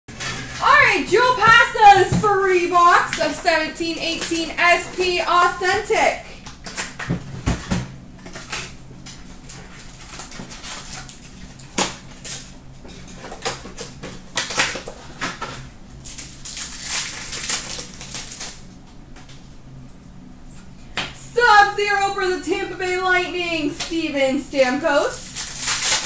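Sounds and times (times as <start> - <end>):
foil and cardboard crinkling: 8.2 - 12.5, 16.0 - 18.6, 25.0 - 26.0.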